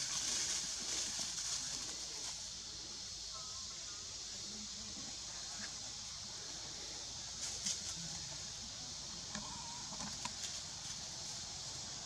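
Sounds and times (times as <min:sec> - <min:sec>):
dry leaves crackling underfoot: 0:00.0 - 0:02.6
steady high hiss: 0:00.0 - 0:12.0.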